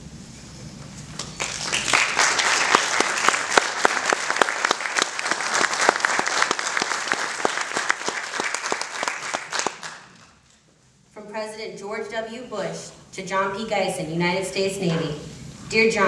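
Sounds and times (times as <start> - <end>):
audience applauding: 1.2 - 10.4.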